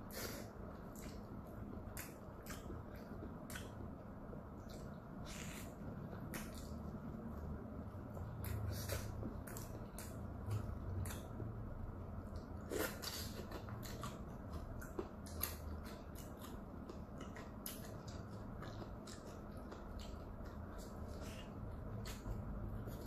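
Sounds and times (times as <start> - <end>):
chewing with mouth clicks: 0.1 - 11.6, 12.2 - 23.0
lip smacks: 1.9 - 3.8.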